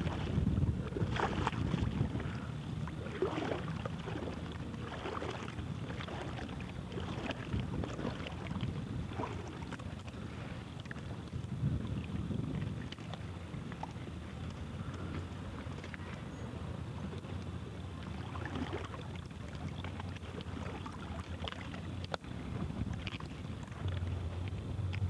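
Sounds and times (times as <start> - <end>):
water slapping against hull: 0.0 - 25.0
wind rumbling on microphone: 0.0 - 25.0.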